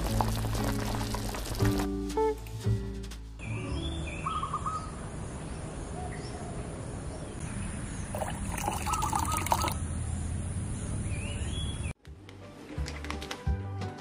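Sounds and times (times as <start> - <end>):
liquid trickling: 0.0 - 1.8, 8.1 - 9.8.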